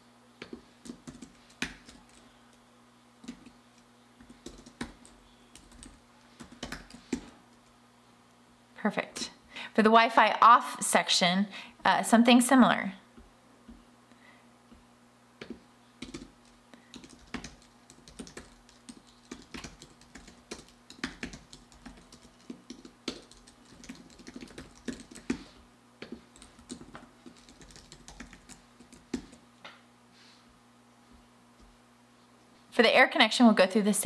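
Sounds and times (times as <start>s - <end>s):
typing on computer keyboard: 0.4s - 2.2s, 3.2s - 7.7s, 15.4s - 29.4s.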